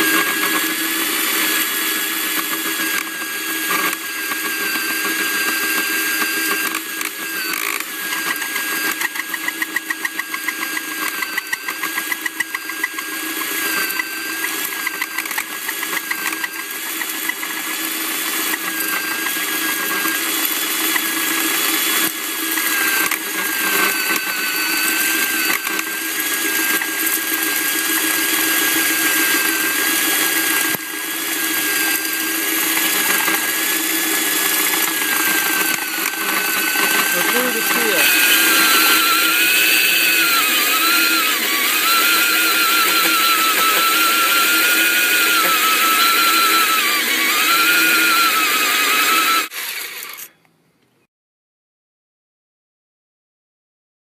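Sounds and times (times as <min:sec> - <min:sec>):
core drill grinding concrete: 0:00.0 - 0:50.3
drill motor whine: 0:00.0 - 0:50.4
fast even pulsing: 0:34.4 - 0:46.9.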